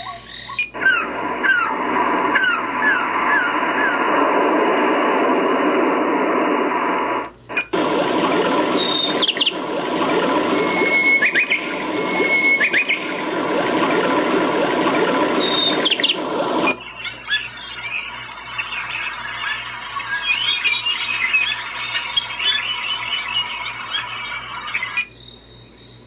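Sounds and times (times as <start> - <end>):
chirps: 0.0 - 26.0
nature sounds from small speaker: 0.0 - 26.0.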